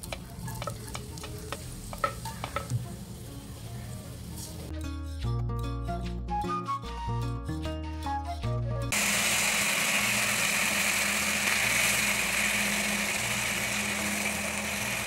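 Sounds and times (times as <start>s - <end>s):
tomatoes sizzling in hot oil: 0.0s - 4.7s, 8.9s - 15.0s
background music: 0.0s - 9.0s.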